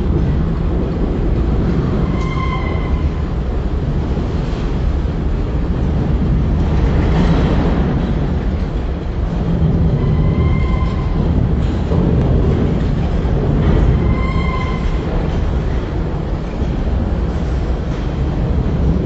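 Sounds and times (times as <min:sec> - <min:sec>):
train wheels rumbling on rail: 0:00.0 - 0:19.0
high wheel squeal: 0:02.0 - 0:03.4, 0:09.9 - 0:11.3, 0:13.8 - 0:15.3.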